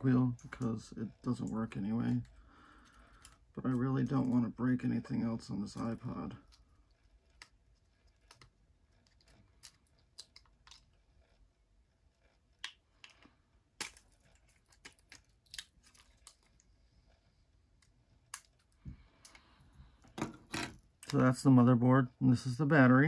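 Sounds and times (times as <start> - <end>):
small parts clicking and tapping: 1.4 - 4.5, 5.7 - 11.0, 17.8 - 21.2.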